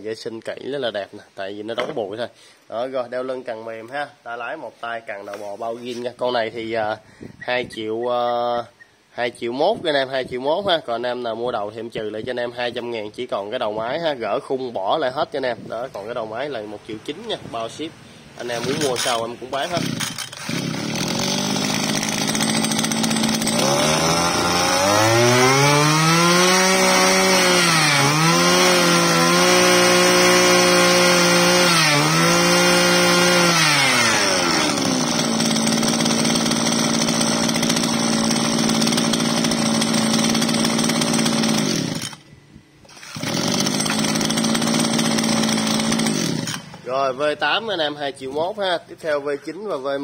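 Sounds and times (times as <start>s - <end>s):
brush cutter engine revving: 18.4s - 42.2s, 42.8s - 46.9s.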